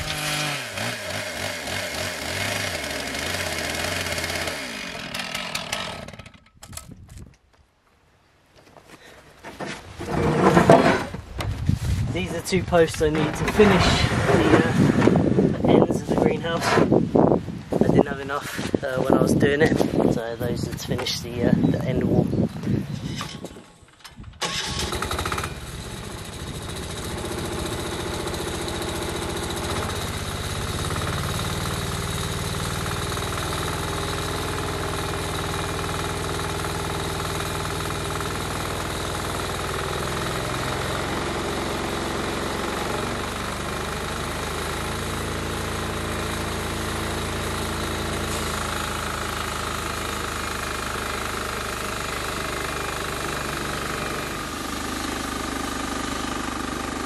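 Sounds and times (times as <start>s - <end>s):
sawmill engine running: 0.0s - 6.6s, 12.1s - 17.0s, 24.4s - 57.0s.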